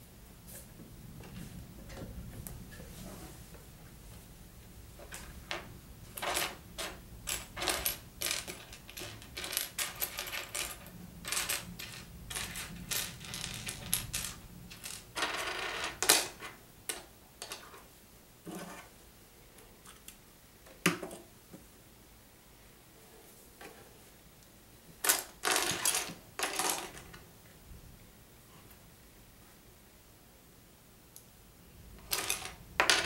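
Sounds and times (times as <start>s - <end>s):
plastic toy bricks clattering: 6.2s - 17.6s.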